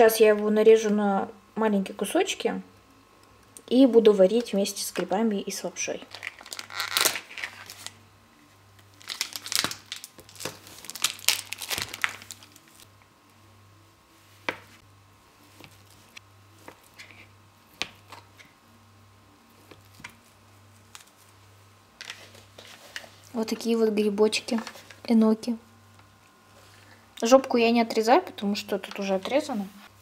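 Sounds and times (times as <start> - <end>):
plastic packaging crinkling and tearing: 6.0 - 8.0, 8.8 - 12.9.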